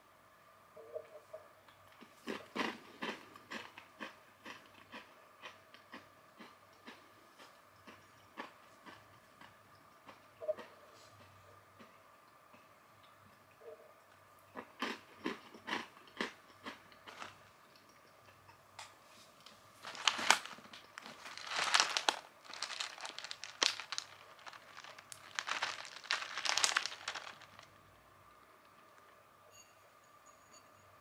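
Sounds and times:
crunchy snack being chewed: 1.9 - 11.3, 14.6 - 17.5, 19.8 - 27.8
foil snack packet crinkling: 17.0 - 17.4, 19.8 - 27.8.

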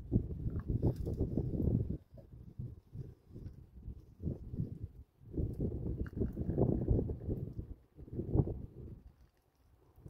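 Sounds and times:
wind buffeting microphone: 0.0 - 9.2.

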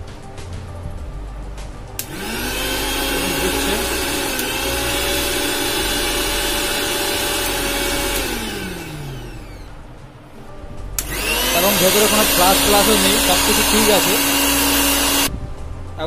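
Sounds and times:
mixer grinder motor whining: 2.0 - 9.8, 11.0 - 15.3.

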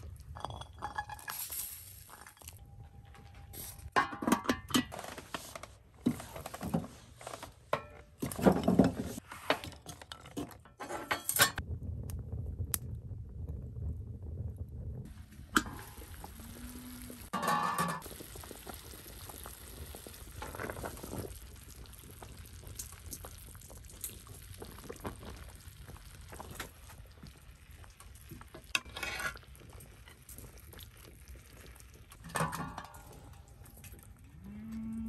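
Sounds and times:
meat sizzling and crackling: 18.0 - 27.8.

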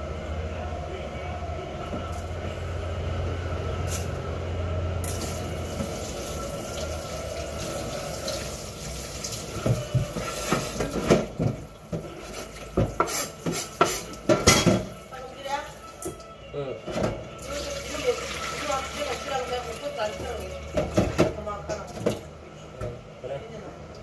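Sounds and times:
dishes and knife clattering: 12.8 - 14.9.

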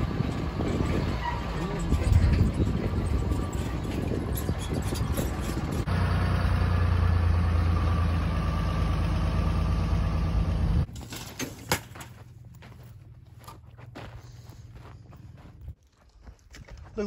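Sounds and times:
truck engine running: 0.0 - 10.9
footsteps on dirt: 10.9 - 17.0.

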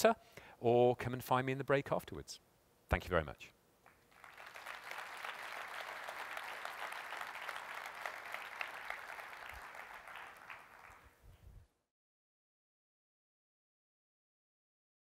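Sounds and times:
audience applauding: 3.9 - 11.1.

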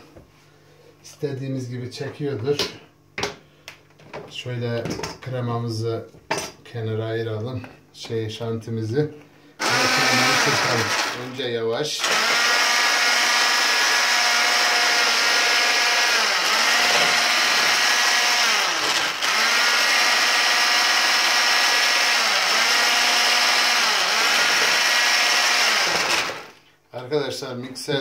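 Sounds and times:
electric hand mixer whining: 9.6 - 11.4, 12.0 - 26.6.

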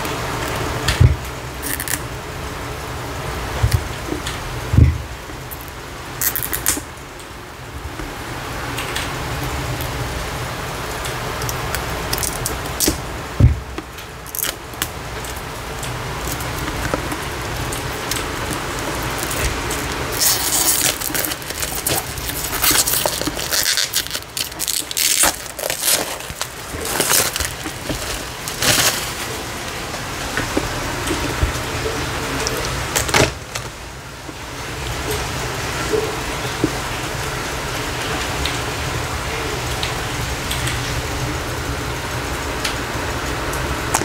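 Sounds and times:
low steady hum: 0.0 - 44.0
card deck packaging crinkling: 1.6 - 2.1, 5.5 - 6.9, 10.9 - 13.1, 13.7 - 34.4.

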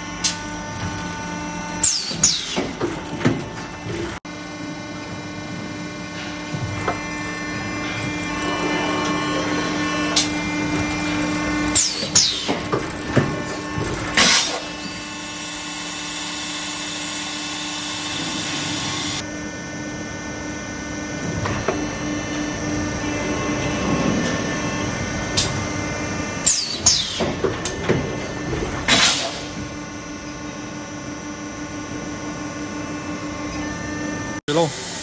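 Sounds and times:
hydraulic system humming: 0.0 - 19.2, 20.8 - 35.0.

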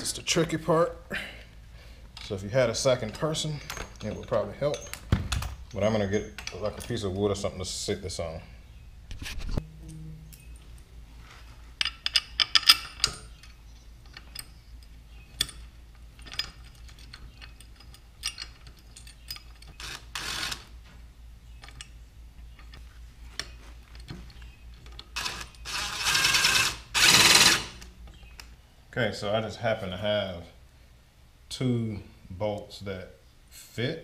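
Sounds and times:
metal tools clinking: 2.1 - 7.4, 11.8 - 20.5.

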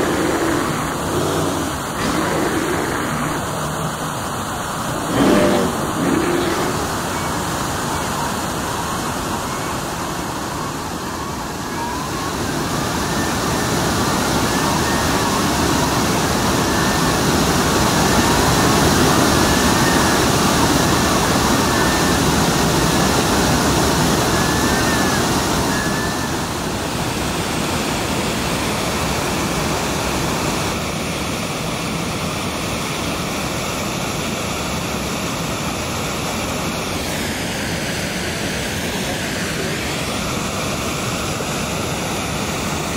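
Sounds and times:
gulls calling: 0.0 - 8.4
waterfall rushing: 0.0 - 29.8.

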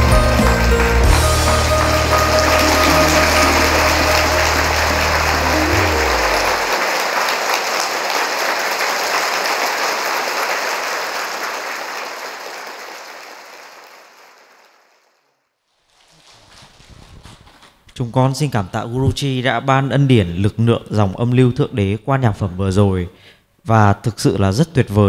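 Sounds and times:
low musical notes: 0.0 - 7.0
audience applauding: 0.0 - 15.1.

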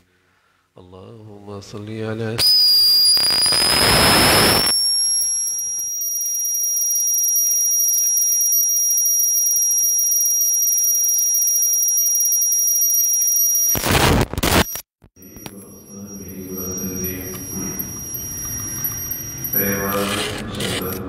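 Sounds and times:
burst of noise: 2.4 - 4.7
high-pitched feedback whistle: 2.4 - 9.5, 15.2 - 20.0.

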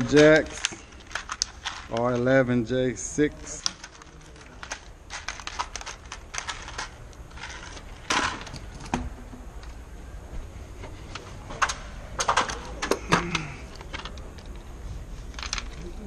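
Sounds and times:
tools clicking in plastic tote: 0.0 - 2.3, 3.4 - 9.0
plastic bag crinkling: 0.0 - 2.6, 3.3 - 8.5.

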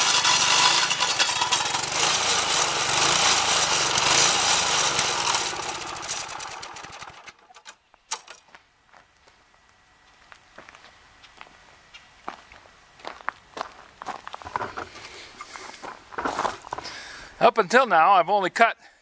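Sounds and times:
stump grinder engine grinding wood: 0.0 - 7.8.

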